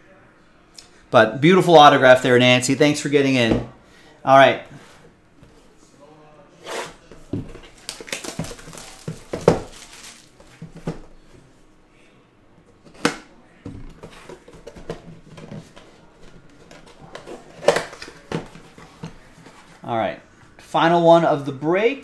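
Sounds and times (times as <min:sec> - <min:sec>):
plastic crinkling and tearing: 0:07.6 - 0:10.5.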